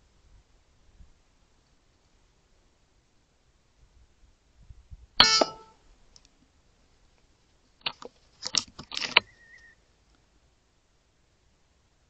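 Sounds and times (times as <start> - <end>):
air rifle shot: 5.2 - 5.7.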